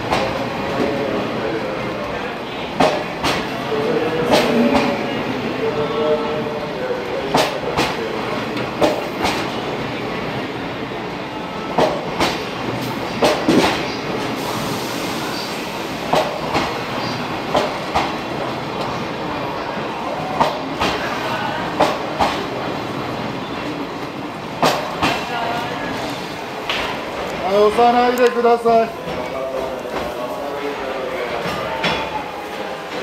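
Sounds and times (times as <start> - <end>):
train coaches rumbling: 0.0 - 33.0.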